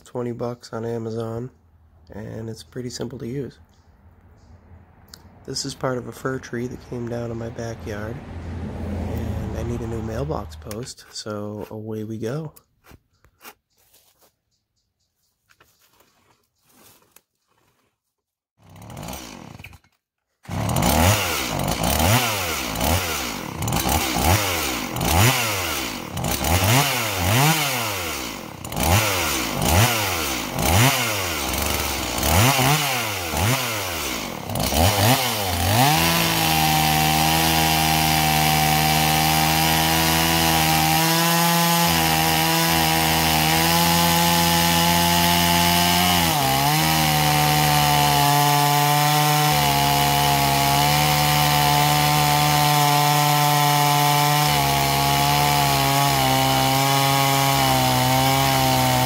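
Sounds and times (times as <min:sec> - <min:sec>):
chainsaw revving: 0:05.5 - 0:08.1, 0:08.9 - 0:10.8, 0:18.6 - 0:59.0
chainsaw cutting through log: 0:05.6 - 0:08.1, 0:08.8 - 0:10.8, 0:18.6 - 0:59.0.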